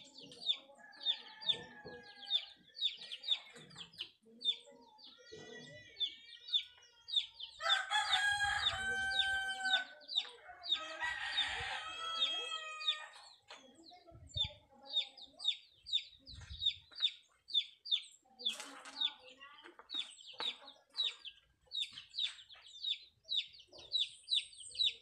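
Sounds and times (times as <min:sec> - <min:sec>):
rooster crowing: 0:07.6 - 0:09.9, 0:10.7 - 0:13.2
bird chirping: 0:12.0 - 0:25.0.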